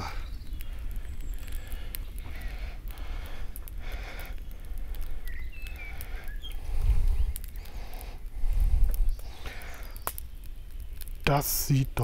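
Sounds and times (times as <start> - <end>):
faint bird chirps: 0.0 - 2.6, 4.4 - 8.0, 9.0 - 11.1
campfire crackling and popping: 0.0 - 12.0.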